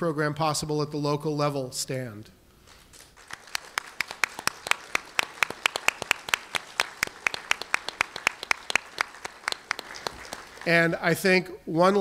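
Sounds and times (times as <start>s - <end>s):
audience clapping: 3.1s - 11.2s
sharp hand claps: 3.2s - 10.7s.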